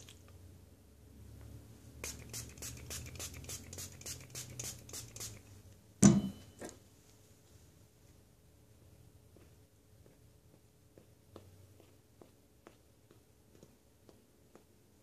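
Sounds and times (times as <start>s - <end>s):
hairbrush scratchy strokes: 2.1s - 5.4s.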